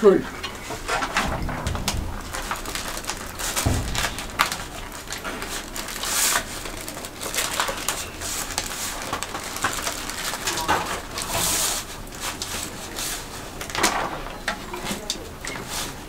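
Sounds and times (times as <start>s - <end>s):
aluminium foil crinkling: 0.4s - 13.8s.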